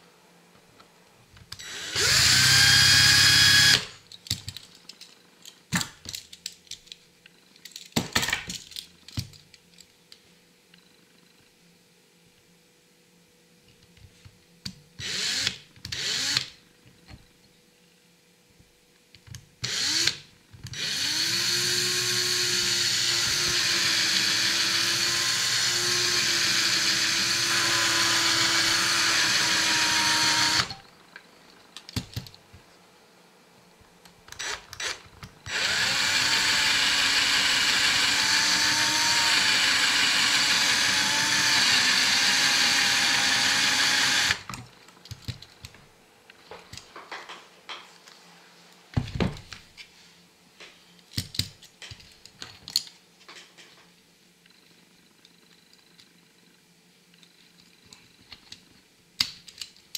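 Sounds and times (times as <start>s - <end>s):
cordless drill whining: 1.6s - 4.0s, 15.0s - 16.5s, 19.6s - 30.9s, 34.3s - 44.6s.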